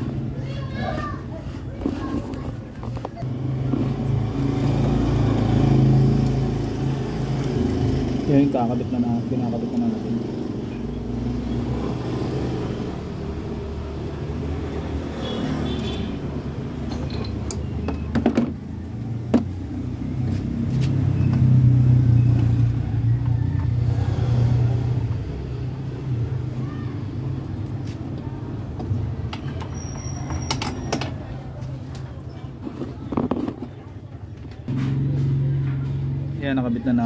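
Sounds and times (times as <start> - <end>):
hand tools clinking on metal: 16.9 - 17.8.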